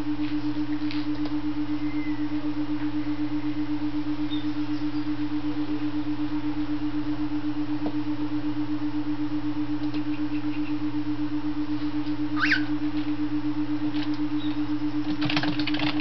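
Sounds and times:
pulsing low hum tone: 0.0s - 16.0s
bird chirp: 1.7s - 5.3s, 9.9s - 10.9s, 12.4s - 12.8s, 14.3s - 14.8s.

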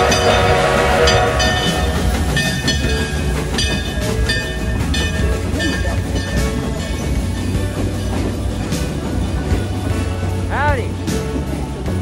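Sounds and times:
train horn chord: 0.0s - 4.5s
background music: 0.0s - 12.0s
rail clatter: 0.0s - 12.0s.

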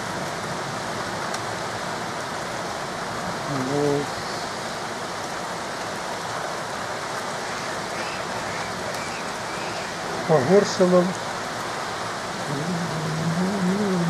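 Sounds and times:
heavy rain pouring: 0.0s - 14.0s
man humming: 12.4s - 14.0s.

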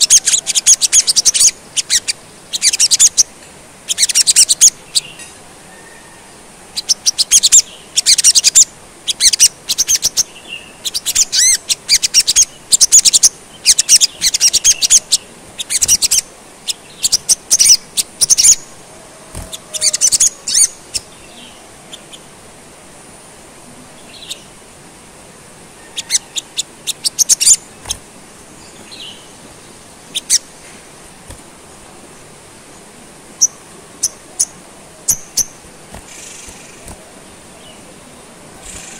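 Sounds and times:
bird singing high-pitched: 0.0s - 3.3s, 3.9s - 5.4s, 6.8s - 18.7s, 19.4s - 22.2s, 25.9s - 28.0s, 30.1s - 30.5s, 33.4s - 37.0s
short bird calls: 3.9s - 22.2s.

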